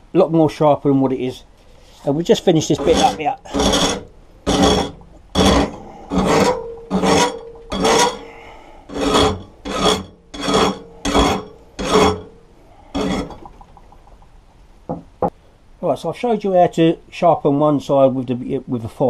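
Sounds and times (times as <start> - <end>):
file rasping on metal blade: 2.7 - 12.3, 12.9 - 13.4.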